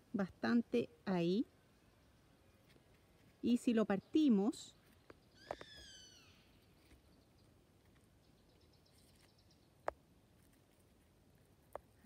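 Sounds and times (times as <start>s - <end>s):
bird call falling in pitch: 5.4s - 6.5s.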